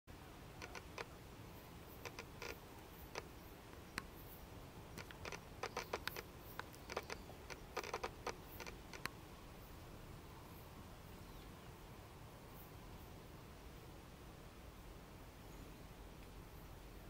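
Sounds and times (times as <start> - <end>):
faint steady hiss: 0.1 - 17.0.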